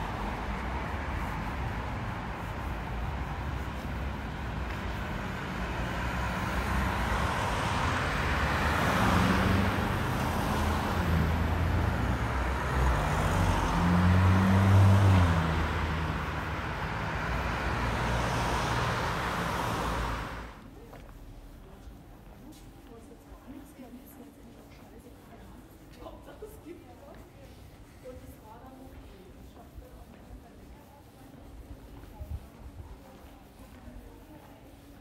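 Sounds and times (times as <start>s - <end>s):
cars driving past: 0.0s - 20.6s.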